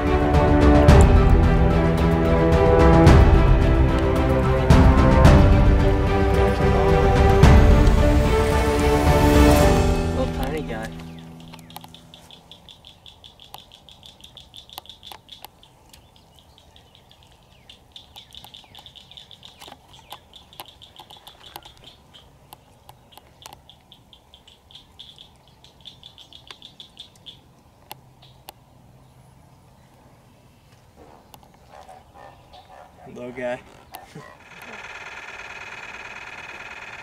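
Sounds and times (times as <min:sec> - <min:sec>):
high-pitched chirping trills: 0:10.0 - 0:22.3, 0:23.1 - 0:27.4
sharp clicks: 0:10.8 - 0:16.1, 0:17.7 - 0:25.4.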